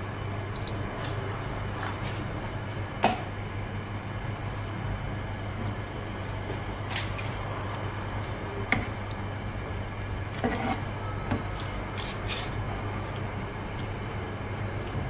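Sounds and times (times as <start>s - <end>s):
spatula scraping in sauce: 10.4s - 11.0s.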